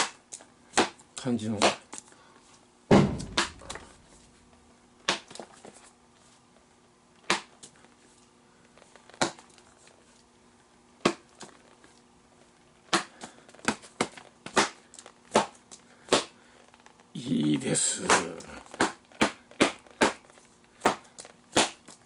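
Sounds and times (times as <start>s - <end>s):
ball popping into leather glove: 2.9s - 4.2s.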